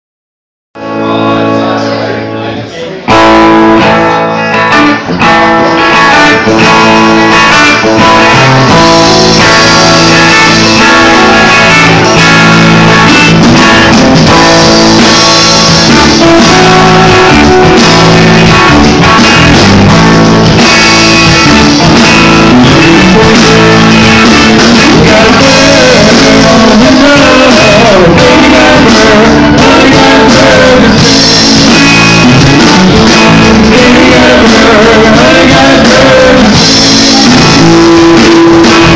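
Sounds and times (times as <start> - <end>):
electric guitars: 0.8 - 38.9
drum kit: 3.1 - 38.9
person singing: 7.7 - 20.2, 21.2 - 38.9.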